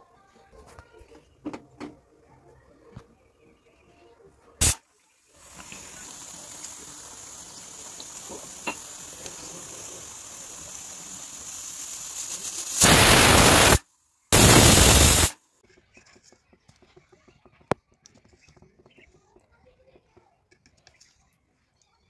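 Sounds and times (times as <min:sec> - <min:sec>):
steam hissing: 0:04.6 - 0:15.4.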